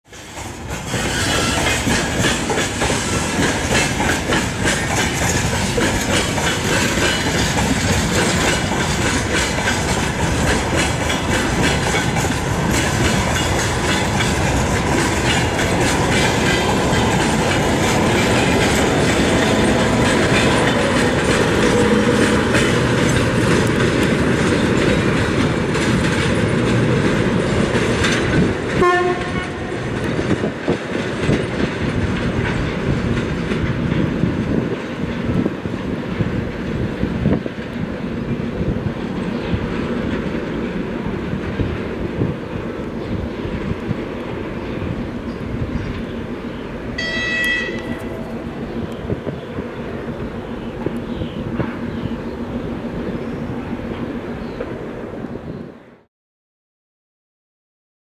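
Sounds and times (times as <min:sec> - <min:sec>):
wagon wheels clacking over rail joints: 0:00.2 - 0:52.1
locomotive horn blast: 0:28.8 - 0:29.8, 0:47.0 - 0:48.2.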